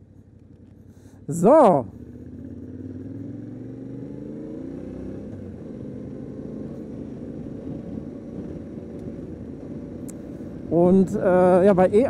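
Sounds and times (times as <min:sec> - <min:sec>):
motorcycle engine pulling away: 0:01.9 - 0:10.5.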